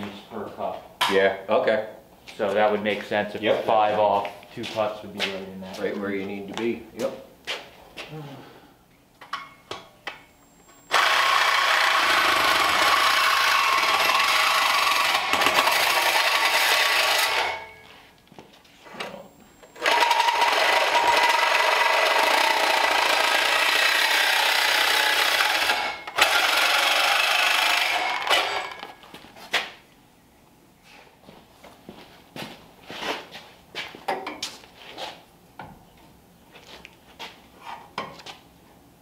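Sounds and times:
power tool cutting steel tubing: 10.8 - 17.8, 19.7 - 28.8.

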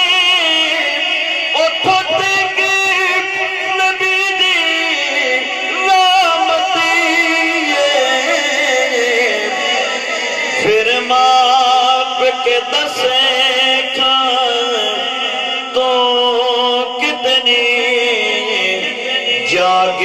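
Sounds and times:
man singing into a microphone: 0.0 - 20.0.

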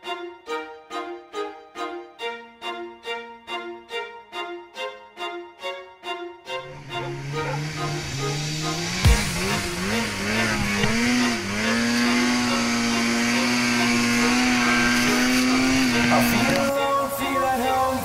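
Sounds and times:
snowmobile engine revving: 6.6 - 18.0.

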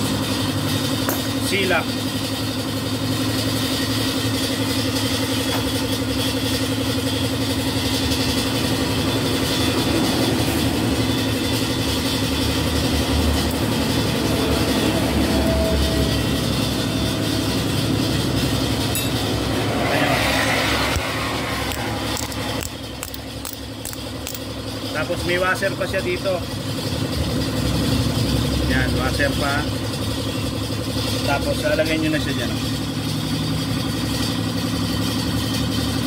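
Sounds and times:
engine humming steadily: 0.0 - 36.0
rush of noise: 19.2 - 22.5.

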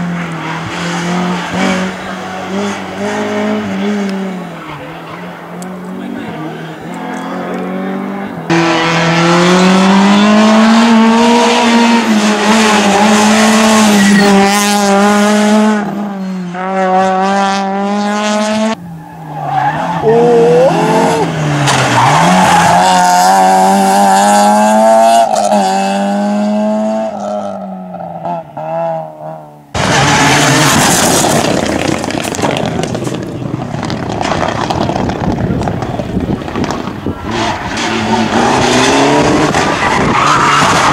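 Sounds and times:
rally car engines revving: 0.0 - 40.9.

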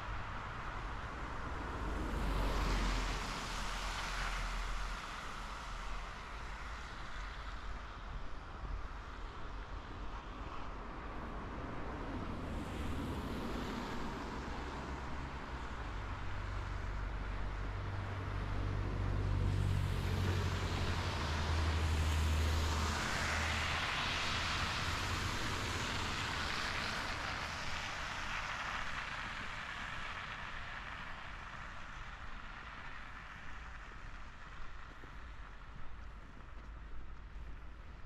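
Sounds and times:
rush of tyres: 0.0 - 38.0
engine rumble: 12.2 - 38.0.

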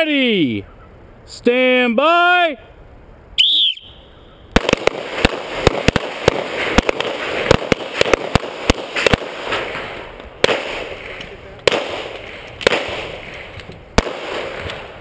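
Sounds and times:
rapid handgun fire: 4.6 - 9.8, 10.4 - 11.1, 11.7 - 13.4, 14.0 - 15.0.

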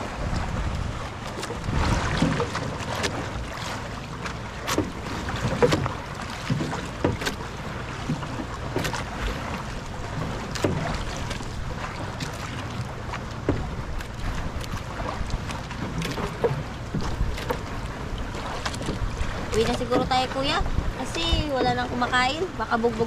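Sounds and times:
wind on microphone: 0.0 - 2.6, 13.5 - 23.0
water slapping against boat hull: 0.0 - 23.0.

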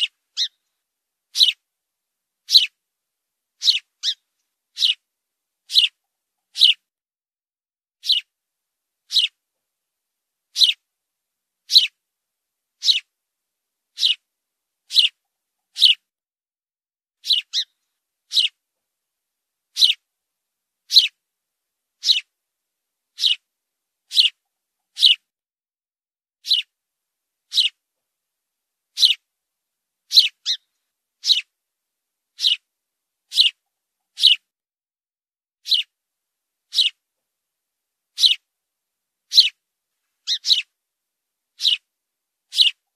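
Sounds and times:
sparrow chirping: 0.0 - 0.7, 1.3 - 1.6, 2.4 - 2.8, 3.6 - 6.8, 8.0 - 8.3, 9.1 - 9.4, 10.5 - 10.8, 11.6 - 12.0, 12.8 - 13.1, 13.9 - 14.3, 14.9 - 16.1, 17.2 - 18.6, 19.7 - 20.1, 20.9 - 21.2, 22.0 - 22.3, 23.1 - 23.5, 24.1 - 25.3, 26.4 - 26.7, 27.5 - 27.8, 28.9 - 29.3, 30.1 - 31.5, 32.3 - 32.7, 33.3 - 34.5, 35.6 - 35.9, 36.7 - 37.0, 38.1 - 38.5, 39.3 - 39.6, 40.2 - 40.8, 41.6 - 41.9, 42.5 - 42.9.

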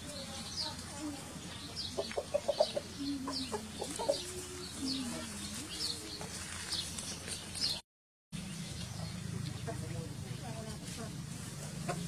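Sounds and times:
chicken clucking: 1.6 - 6.2.

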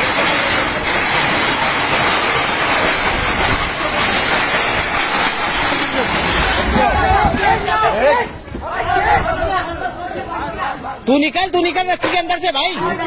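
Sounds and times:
metal sheets rattling and scraping: 0.0 - 8.6.

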